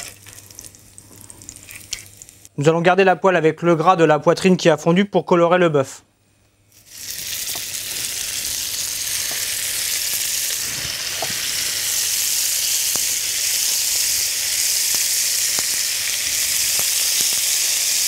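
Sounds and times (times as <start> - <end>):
meat sizzling in a frying pan: 6.7 - 18.0.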